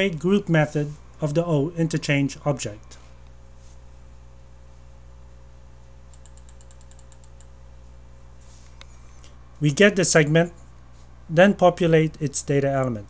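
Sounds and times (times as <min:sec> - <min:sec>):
steady low hum: 0:00.0 - 0:13.0
computer keyboard clicks: 0:06.1 - 0:07.5.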